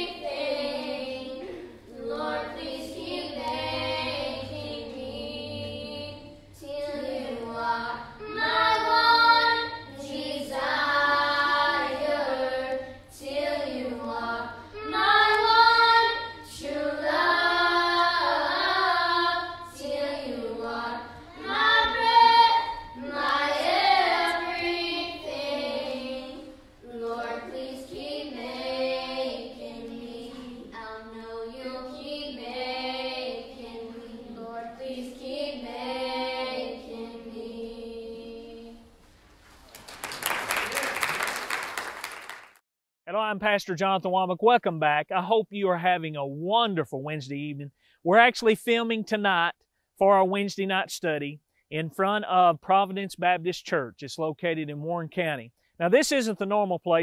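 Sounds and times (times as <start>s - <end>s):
children singing: 0.0s - 38.8s.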